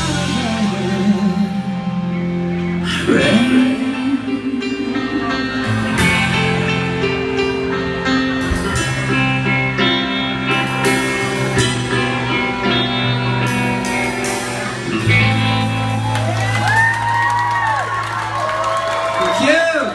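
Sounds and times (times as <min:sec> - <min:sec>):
electric guitar: 0:00.0 - 0:19.6
bass guitar: 0:00.0 - 0:19.9
drums with cymbal hits: 0:08.3 - 0:16.1
crowd whooping: 0:12.0 - 0:19.9.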